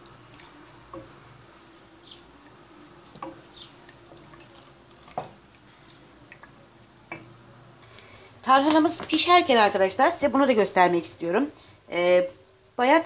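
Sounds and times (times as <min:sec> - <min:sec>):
wooden spoon stirring thick soup: 0:00.0 - 0:07.4.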